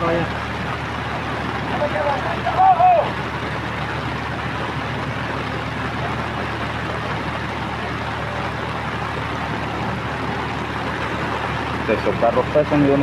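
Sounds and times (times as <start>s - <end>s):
engine running low: 0.0s - 13.0s
flooded river rushing: 0.0s - 13.0s
heavy rain: 0.0s - 13.0s.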